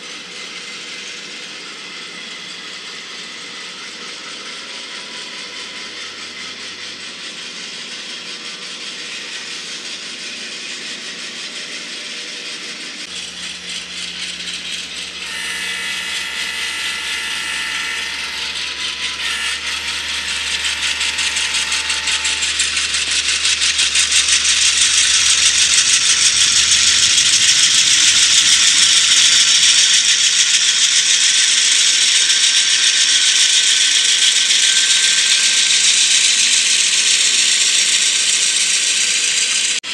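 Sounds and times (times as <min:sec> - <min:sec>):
model trains rattling on track: 0:00.0 - 0:39.9
chord of steady tones: 0:15.0 - 0:24.2.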